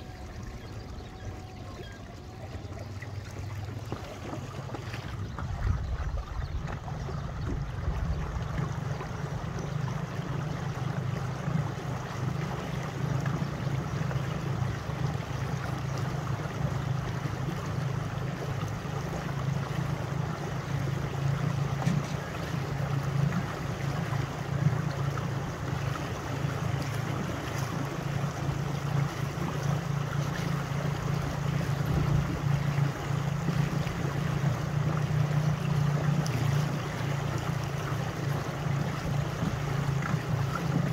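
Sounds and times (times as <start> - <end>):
wind-ruffled water: 0.0 - 40.9
wind rushing over microphone: 5.1 - 8.5.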